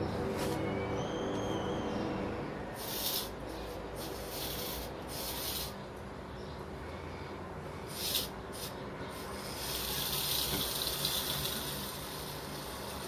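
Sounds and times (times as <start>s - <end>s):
low steady drone: 0.0s - 5.1s
high gliding call-like tone: 0.1s - 2.8s
bursts of hiss: 7.9s - 12.2s.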